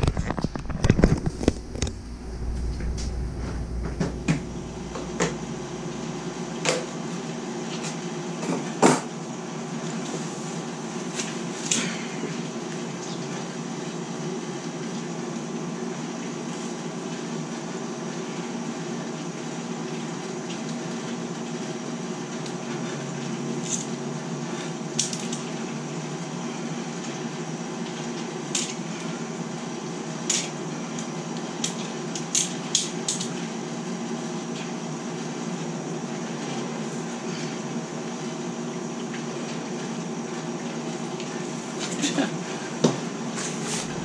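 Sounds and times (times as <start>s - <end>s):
steady low hum: 0.0s - 14.4s, 33.1s - 44.0s.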